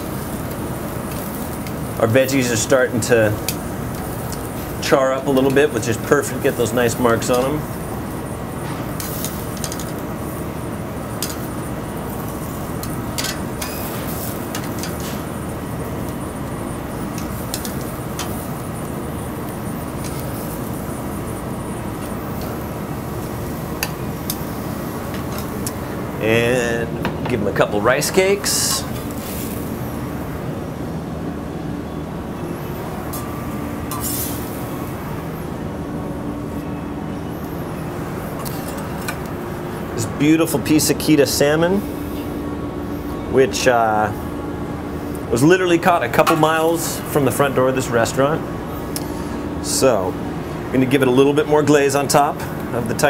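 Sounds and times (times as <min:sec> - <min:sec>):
gas grill and exhaust hood roar: 0:00.0 - 0:53.0
kitchen ventilation hum: 0:00.0 - 0:53.0
metal tongs clicking on grill: 0:07.2 - 0:07.6, 0:09.0 - 0:10.0, 0:11.2 - 0:11.5, 0:12.8 - 0:15.0, 0:17.1 - 0:18.4, 0:23.8 - 0:24.4.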